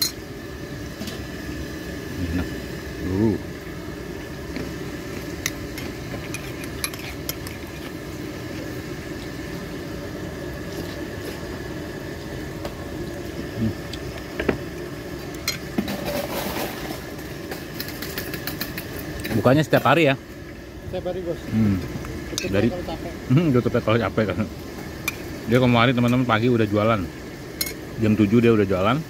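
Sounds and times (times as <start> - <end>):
low background hum: 0.0 - 29.0.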